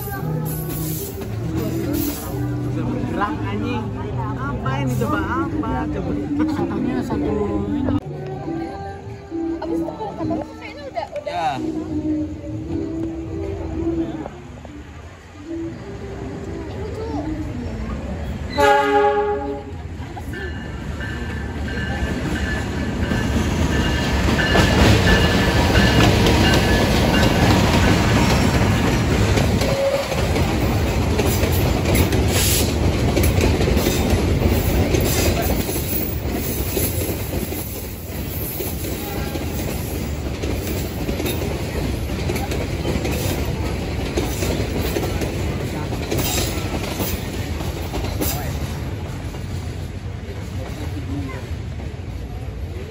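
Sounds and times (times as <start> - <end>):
freight train rumble: 0.0 - 52.9
wheels clattering over rail joints: 20.2 - 51.1.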